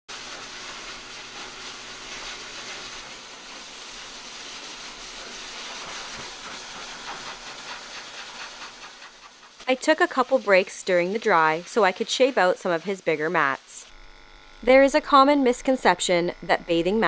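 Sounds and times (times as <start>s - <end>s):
pet dryer blowing air: 0.1s - 14.0s, 14.6s - 17.0s.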